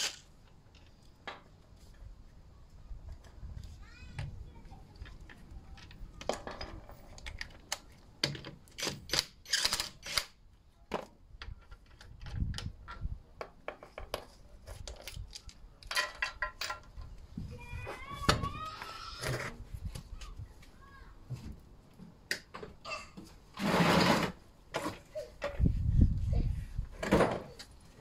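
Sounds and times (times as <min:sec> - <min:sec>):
bolts clattering on concrete: 0:11.0 - 0:17.1.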